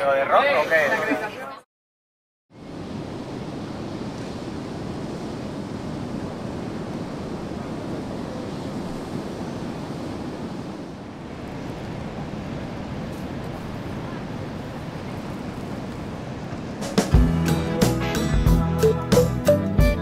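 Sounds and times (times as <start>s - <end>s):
wind: 0.0s - 1.6s, 2.5s - 20.0s
surf breaking on a beach: 2.6s - 17.2s.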